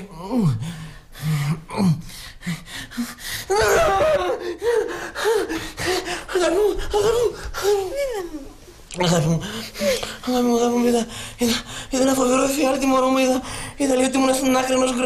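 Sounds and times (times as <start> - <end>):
man gasping cries: 0.2 - 8.3.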